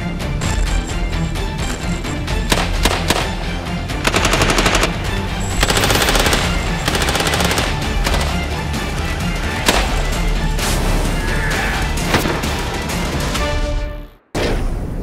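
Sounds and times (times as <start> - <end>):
background music: 0.0 - 15.0
machine gun automatic fire: 4.0 - 5.0, 5.6 - 8.5.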